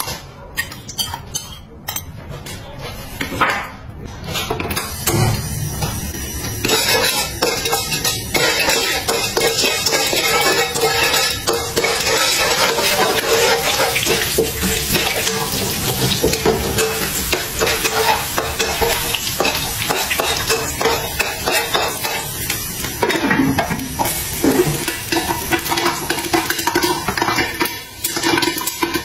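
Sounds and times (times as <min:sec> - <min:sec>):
metal spatula scraping wok: 0:04.3 - 0:22.4
food sizzling in hot oil: 0:04.8 - 0:29.0.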